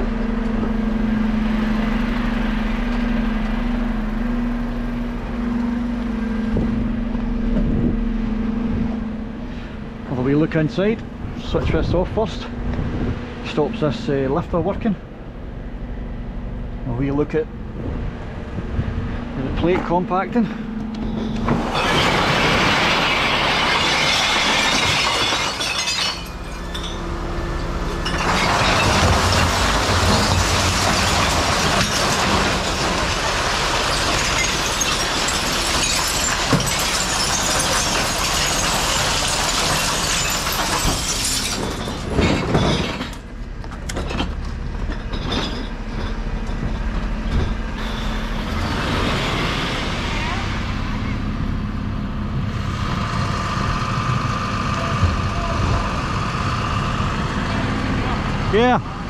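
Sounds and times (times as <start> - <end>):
truck engine running: 0.0 - 59.0
hydraulic compactor crushing glass bottles: 19.6 - 51.2.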